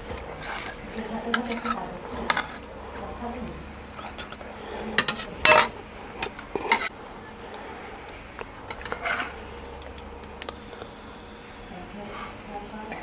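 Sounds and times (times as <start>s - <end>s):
ladle scraping metal pot: 0.0s - 3.1s, 3.8s - 7.0s, 8.1s - 11.2s
ladle clanking on metal pot: 4.0s - 6.9s.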